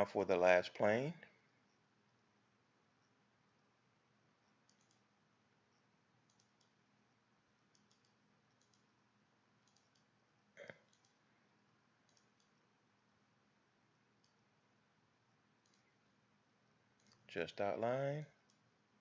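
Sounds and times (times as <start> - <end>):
faint computer mouse clicks: 4.4 - 5.1, 5.7 - 6.8, 7.7 - 8.9, 9.6 - 11.2, 12.1 - 12.6, 14.2 - 14.4, 15.6 - 15.9, 17.0 - 17.3.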